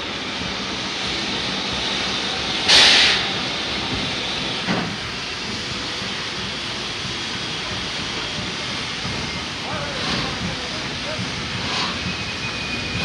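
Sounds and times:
steam locomotive hissing: 0.0s - 13.0s
burst of escaping steam: 1.9s - 6.3s.

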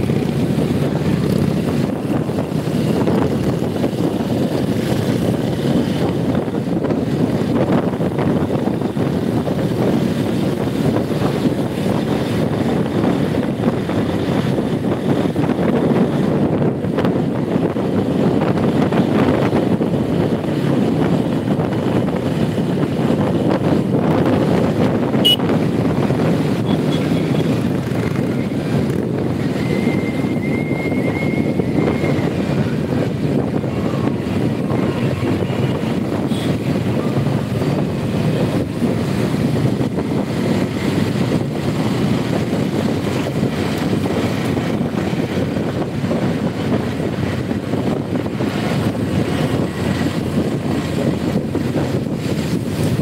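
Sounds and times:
road and engine rumble: 0.0s - 53.0s
wind buffeting microphone: 0.0s - 53.0s.

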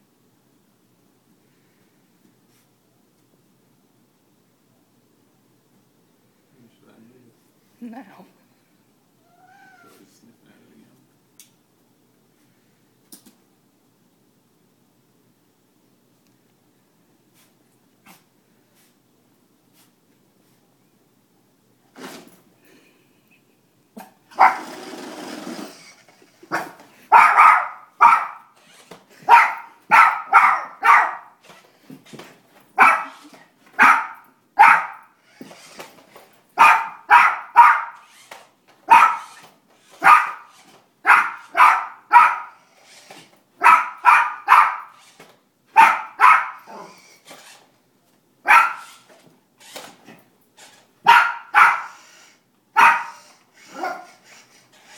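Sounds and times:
small dog barking excitedly: 24.0s - 24.8s, 26.5s - 31.4s, 32.8s - 35.1s, 36.6s - 38.2s, 38.8s - 42.6s, 43.6s - 45.1s, 45.7s - 47.0s, 48.4s - 49.1s, 51.0s - 52.1s, 52.7s - 54.4s.

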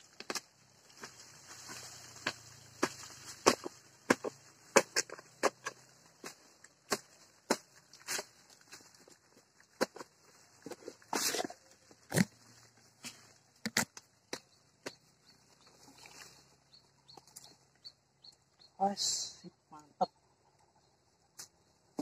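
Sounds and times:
steel bar striking earth: 1.7s - 8.3s.

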